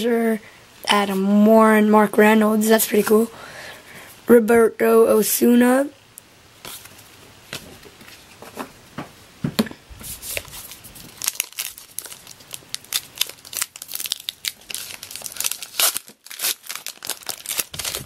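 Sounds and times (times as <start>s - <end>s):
wrapper crinkling and tearing: 10.3s - 18.0s.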